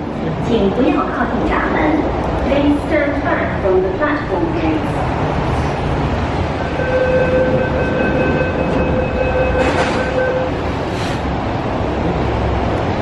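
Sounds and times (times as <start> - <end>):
train rumbling: 0.0 - 13.0
door closing warning tone: 6.6 - 10.6
train doors clunking shut: 7.4 - 10.7.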